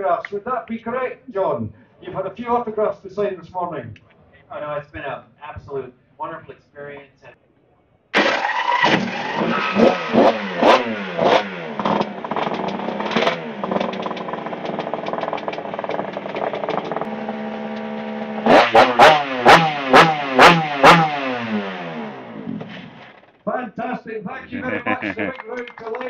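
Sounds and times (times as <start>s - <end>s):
motorcycle engine revving and idling: 8.9s - 23.3s.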